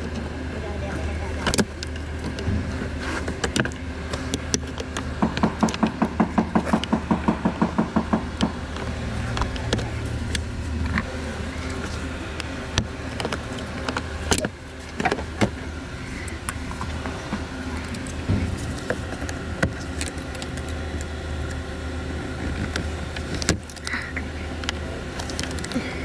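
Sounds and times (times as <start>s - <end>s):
low hum: 0.0s - 26.0s
rapid knocks: 5.1s - 8.8s.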